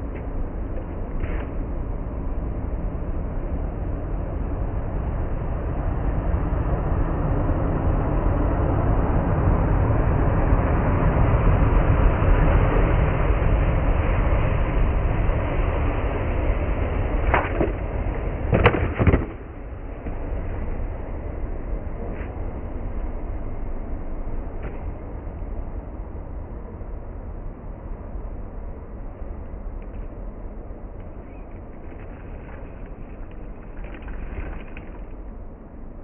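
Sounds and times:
skateboard deck slapping on concrete: 18.5 - 19.6.

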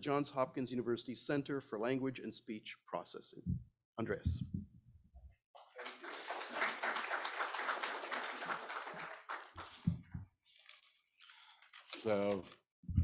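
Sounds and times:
audience applauding: 5.6 - 9.9.

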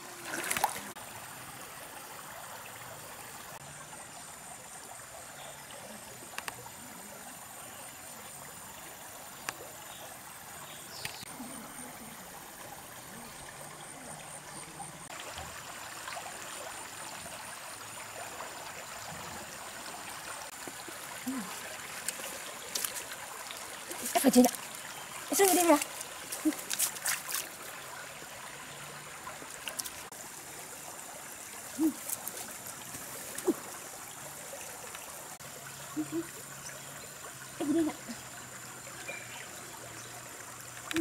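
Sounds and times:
stream water running: 0.0 - 41.0.

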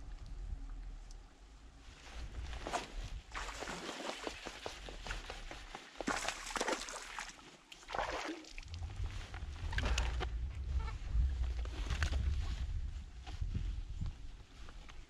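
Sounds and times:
fish splashing at water surface: 6.0 - 8.7.

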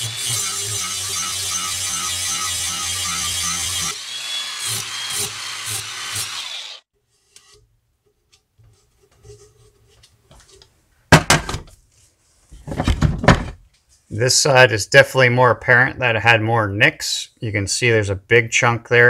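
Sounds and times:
angle grinder grinding steel: 0.0 - 6.9.

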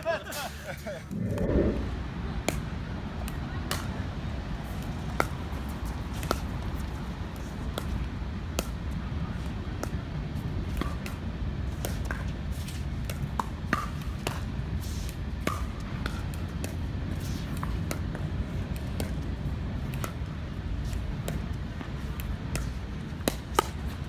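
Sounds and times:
steady low rumble: 0.8 - 3.1.

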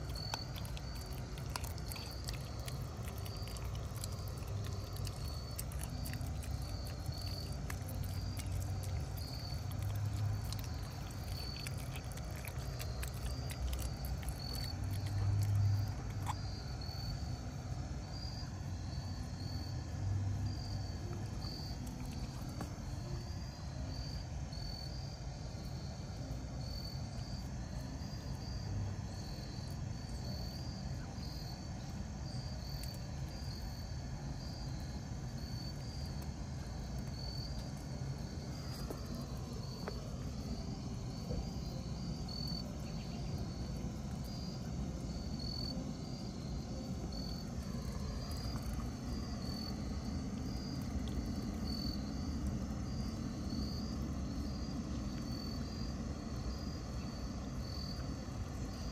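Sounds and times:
puppy crunching bone: 0.0 - 16.4, 21.2 - 22.8, 36.9 - 41.0
insects chirping: 0.0 - 58.9.

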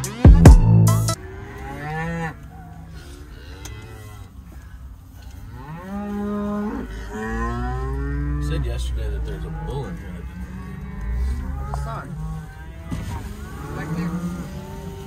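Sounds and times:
cattle mooing: 0.9 - 15.0.

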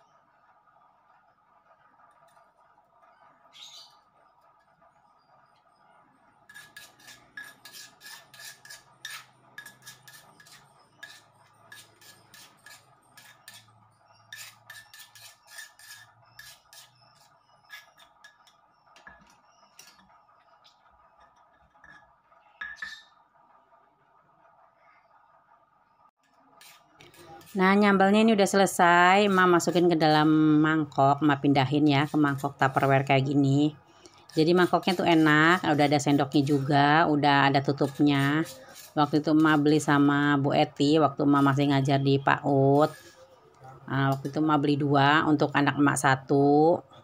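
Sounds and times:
stone pestle grinding in mortar: 6.4 - 20.0, 26.3 - 43.2.

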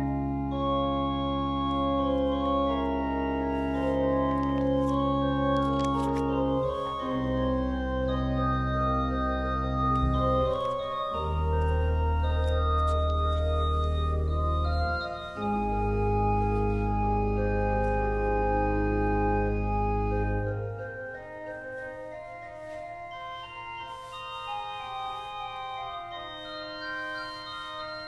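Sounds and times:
deep organ bass: 0.0 - 21.4
church organ chords: 0.0 - 28.0.

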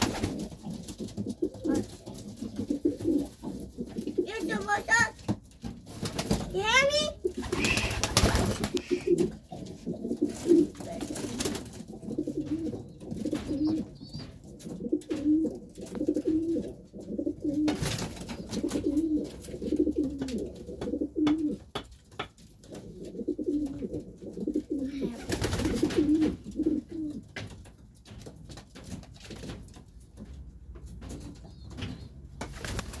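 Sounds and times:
pigeons cooing: 0.0 - 4.9, 6.7 - 21.8, 22.7 - 27.4
wings flapping: 0.0 - 5.1, 5.8 - 14.3, 17.6 - 20.7, 25.0 - 26.9, 31.8 - 33.0.

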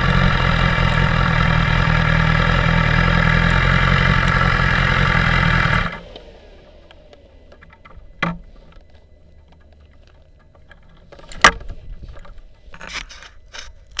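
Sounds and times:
faint low rumble: 0.0 - 14.0
sharp clicks and knocks: 6.1 - 14.0.

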